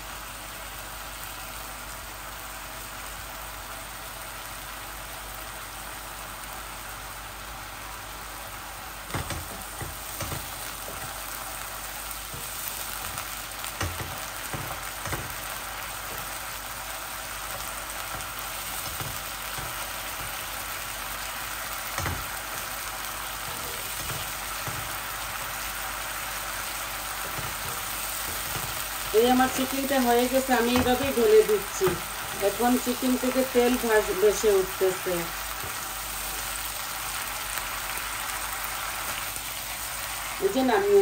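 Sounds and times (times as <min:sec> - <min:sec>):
chicken sizzling in a wok: 0:00.0 - 0:41.0
wooden spatula knocking on pan: 0:09.1 - 0:11.2, 0:12.3 - 0:15.5, 0:17.6 - 0:20.4, 0:22.0 - 0:22.4, 0:23.4 - 0:25.0, 0:27.2 - 0:28.9, 0:30.7 - 0:31.2.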